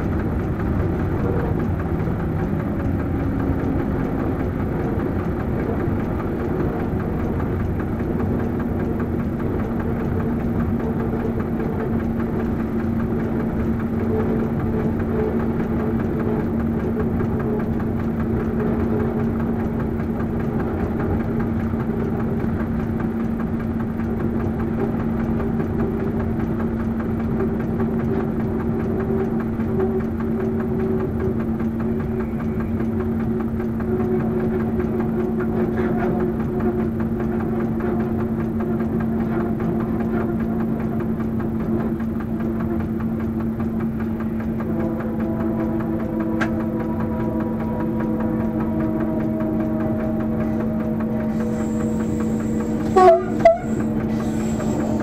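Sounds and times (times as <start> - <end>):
locomotive diesel engine running: 0.0 - 55.0
steady hum: 30.1 - 55.0.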